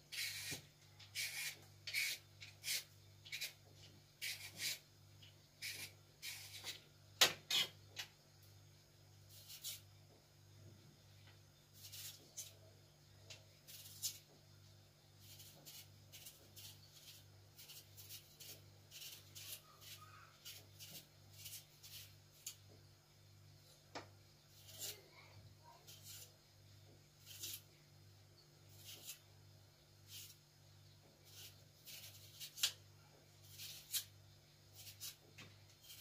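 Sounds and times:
knife scraping potatoes: 0.0 - 4.9, 5.6 - 7.8, 9.3 - 9.9, 11.7 - 12.6, 13.6 - 14.3, 15.2 - 22.6, 24.5 - 26.4, 27.2 - 27.8, 28.6 - 29.3, 30.0 - 30.5, 31.1 - 32.8, 33.4 - 36.0.

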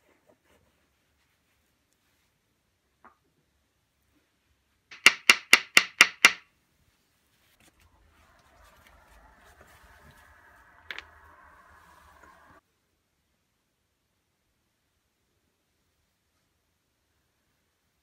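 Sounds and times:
massage stones clacking together: 4.9 - 6.4
faint steady hum: 7.6 - 18.0.

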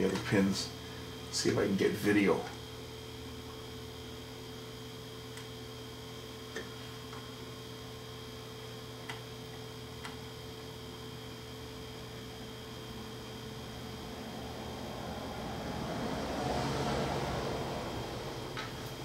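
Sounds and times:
electrical mains hum: 0.0 - 19.0
thin high whine: 10.6 - 19.0.

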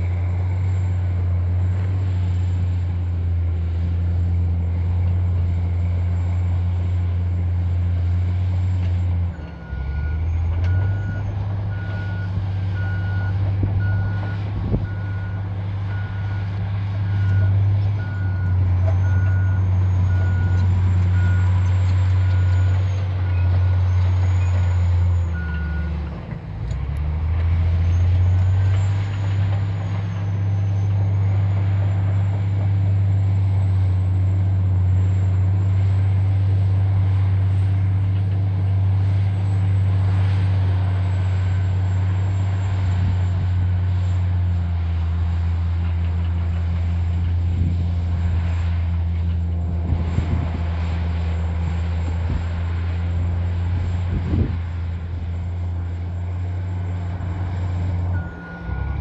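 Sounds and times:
bulldozer diesel engine running: 0.0 - 59.0
backup alarm beeping: 58.2 - 59.0.

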